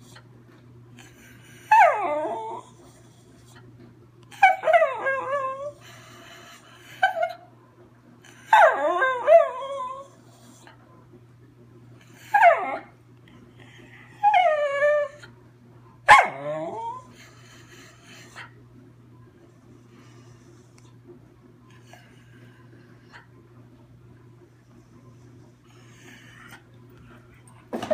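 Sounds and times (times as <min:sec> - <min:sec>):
dog whining and howling: 0:01.5 - 0:03.0, 0:04.3 - 0:05.8, 0:08.3 - 0:10.8, 0:12.1 - 0:13.0, 0:13.8 - 0:15.4, 0:16.1 - 0:17.2.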